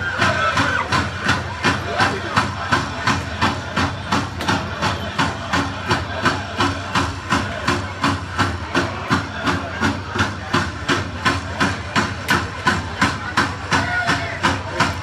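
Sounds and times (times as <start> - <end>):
hand drums beating steadily: 0.1 - 15.0.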